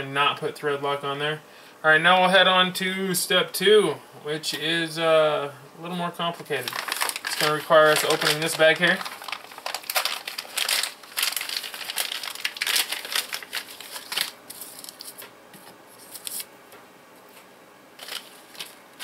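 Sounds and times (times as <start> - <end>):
plastic bag crinkling: 6.5 - 15.3, 18.0 - 19.0.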